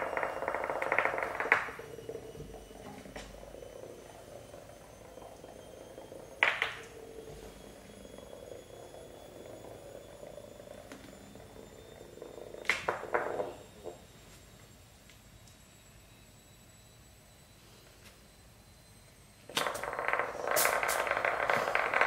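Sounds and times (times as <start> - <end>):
sharp clatter: 19.5 - 22.0
toy bug buzzing: 19.5 - 22.0.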